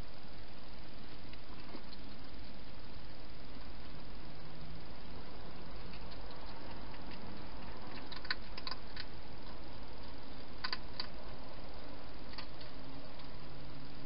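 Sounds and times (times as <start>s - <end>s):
steady hiss: 0.0s - 14.0s
hedgehog chewing clicks: 1.3s - 2.6s, 5.6s - 11.4s, 12.3s - 13.4s.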